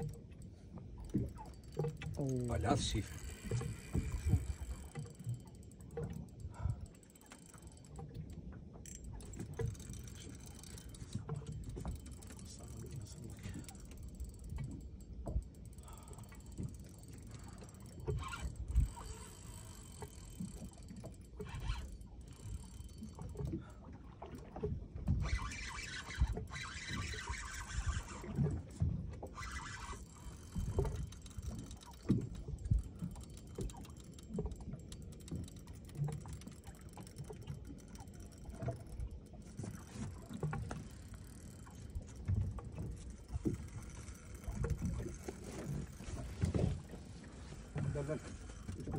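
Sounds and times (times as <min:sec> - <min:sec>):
wind and water rumble: 0:00.0 - 0:48.9.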